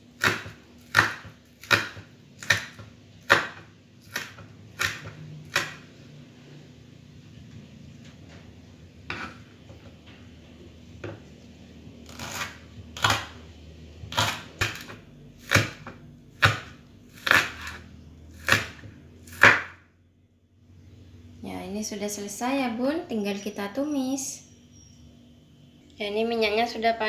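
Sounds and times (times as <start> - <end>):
knife chopping on wooden board: 0.2 - 5.9, 9.1 - 9.5, 12.1 - 13.4, 14.1 - 17.8, 18.4 - 19.8.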